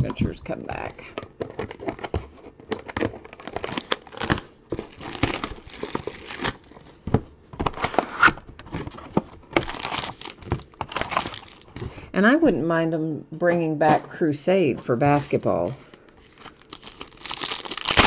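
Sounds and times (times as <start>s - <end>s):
card wrappers tearing and crinkling: 0.7s - 6.9s, 7.7s - 11.8s, 16.0s - 18.0s.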